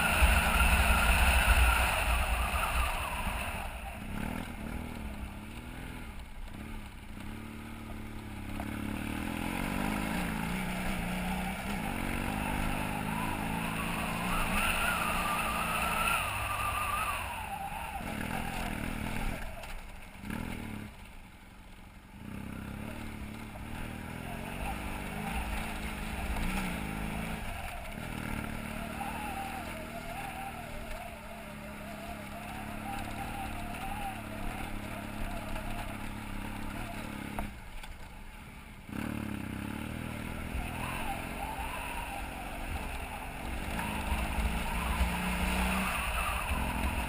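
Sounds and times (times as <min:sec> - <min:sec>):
motorcycle engine revving: 0:00.0 - 0:47.0.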